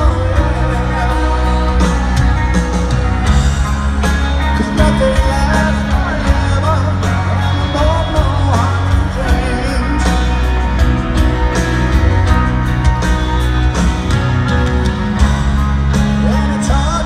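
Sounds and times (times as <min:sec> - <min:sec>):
man singing lead vocal: 0:00.0 - 0:02.7, 0:04.1 - 0:10.9, 0:15.9 - 0:17.0
live rock ballad: 0:00.0 - 0:17.0
stadium crowd: 0:00.0 - 0:17.0.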